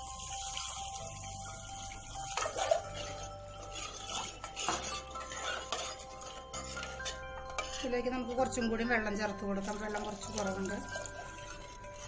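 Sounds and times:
water pouring and splashing: 0.0 - 7.0, 9.6 - 12.0
soft background music: 0.0 - 12.0
ladle clinking against pot: 2.3 - 7.9.

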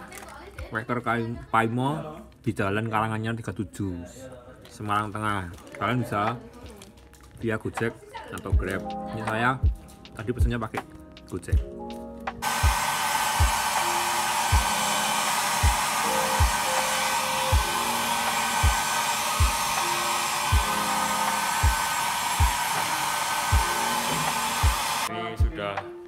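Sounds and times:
low music beat thumping: 11.5 - 26.0
hair dryer blowing: 12.4 - 25.1.

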